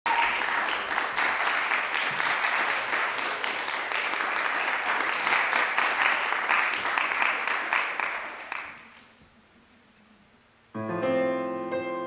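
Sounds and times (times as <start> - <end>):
audience applauding: 0.0 - 9.0.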